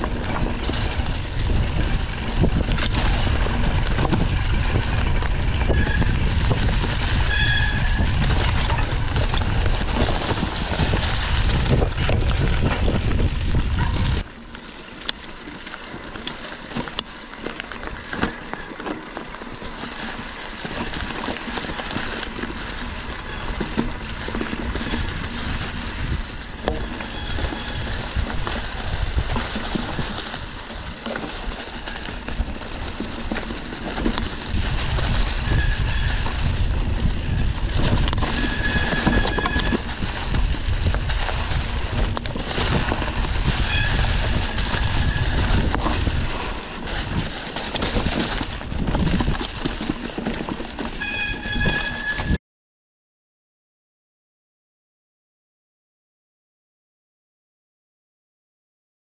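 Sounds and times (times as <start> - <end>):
wind buffeting microphone: 0.0 - 14.3, 22.9 - 52.4
bicycle rattles and clicks: 0.0 - 52.4.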